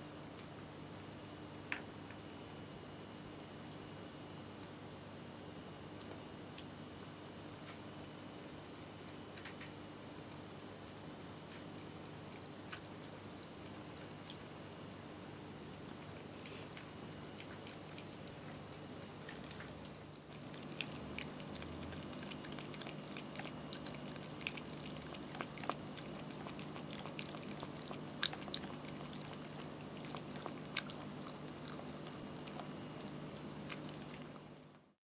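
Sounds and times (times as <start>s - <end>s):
cat lapping water: 11.4s - 34.9s
fountain pump hum: 18.1s - 34.2s.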